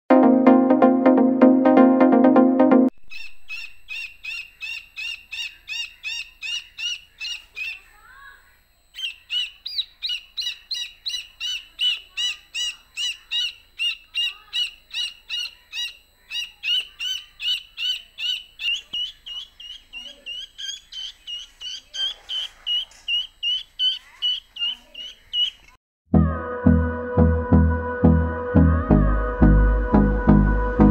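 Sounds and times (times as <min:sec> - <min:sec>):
chick peeping: 0:03.1 - 0:25.8.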